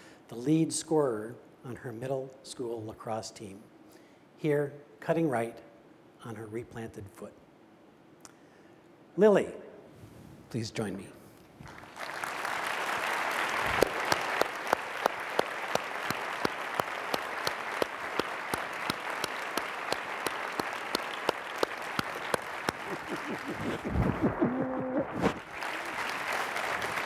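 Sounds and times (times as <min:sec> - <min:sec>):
audience applauding: 0:11.6 - 0:27.0
sharp nearby hand claps: 0:13.5 - 0:23.7.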